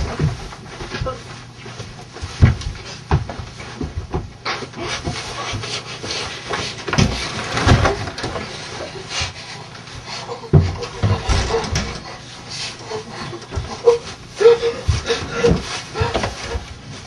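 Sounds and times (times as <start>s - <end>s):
scuffling: 0.0s - 17.0s
strained gasping vocal noises: 8.9s - 16.6s.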